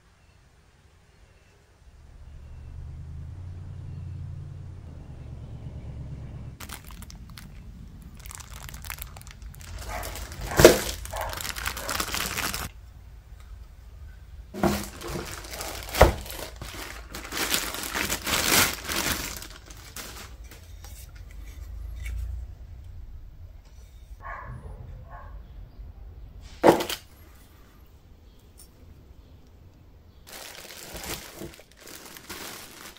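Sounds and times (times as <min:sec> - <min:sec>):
plastic bags crinkling: 0:06.6 - 0:12.7, 0:14.6 - 0:21.0, 0:30.2 - 0:32.9.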